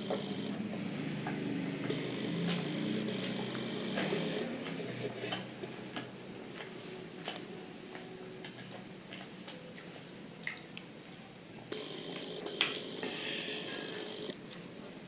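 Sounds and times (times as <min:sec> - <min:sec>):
chewing with wet mouth clicks: 0:00.1 - 0:11.2, 0:12.4 - 0:12.8.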